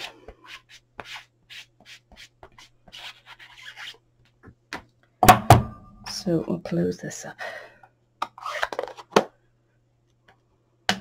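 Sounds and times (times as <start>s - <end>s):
scratchy rubbing strokes: 0.0s - 4.0s.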